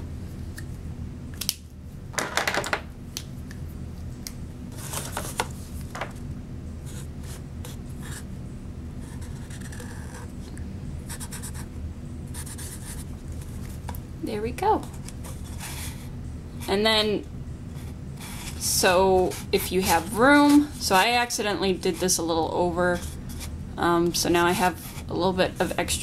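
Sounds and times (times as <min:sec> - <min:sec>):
marker scratching on paper cup: 0:09.0 - 0:10.3, 0:11.1 - 0:11.6, 0:12.3 - 0:13.6.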